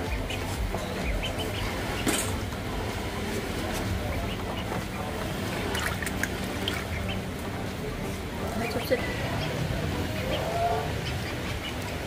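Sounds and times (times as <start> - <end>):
ducklings slurping wet food: 0.0 - 2.0, 2.9 - 10.4.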